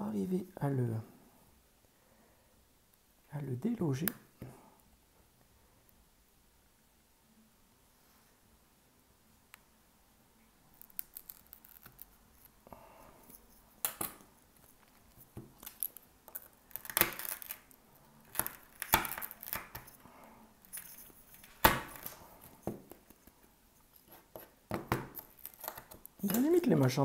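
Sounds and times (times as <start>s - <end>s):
glass cracking and snapping: 15.6s - 19.9s, 25.1s - 26.6s.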